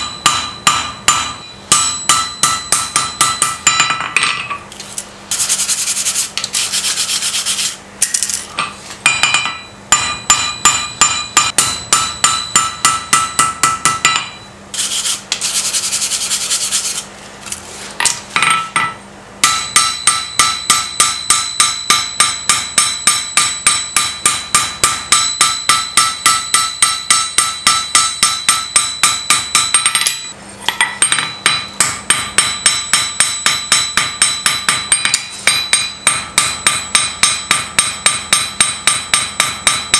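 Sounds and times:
hammer blows ringing anvil: 0.0s - 4.6s, 8.6s - 14.6s, 18.4s - 39.9s
wire brush scrubbing steel: 5.3s - 7.8s, 14.7s - 17.1s.

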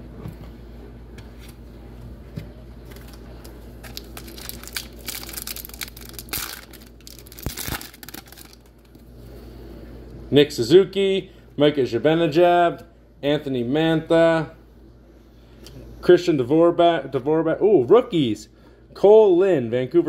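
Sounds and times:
foil wrapper crinkling and tearing: 2.8s - 9.0s.

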